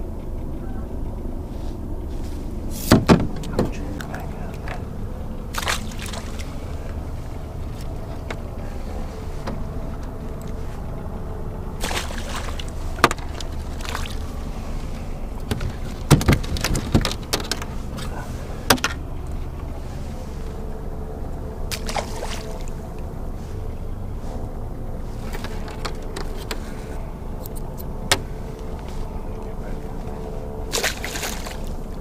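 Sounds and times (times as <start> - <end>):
steady low rumble: 0.0 - 32.0
fish splashing into water: 5.5 - 6.6, 11.8 - 14.2, 21.7 - 22.7, 30.7 - 31.7.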